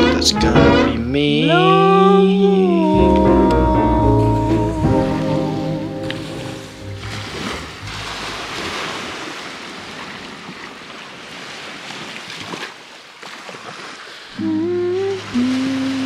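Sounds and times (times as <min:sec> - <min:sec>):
sea waves washing: 0:00.0 - 0:16.0
low wavering tone: 0:14.4 - 0:16.0.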